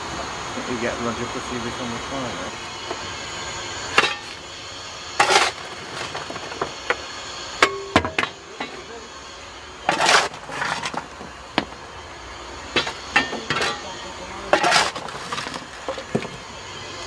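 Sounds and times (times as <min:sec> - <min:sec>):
steel shovel clinking: 0:04.0 - 0:04.4, 0:05.2 - 0:06.3, 0:07.6 - 0:08.8, 0:09.9 - 0:11.1, 0:12.8 - 0:13.9, 0:14.5 - 0:16.0
shovel scraping into coal: 0:05.2 - 0:06.6, 0:09.8 - 0:11.2, 0:14.5 - 0:16.1.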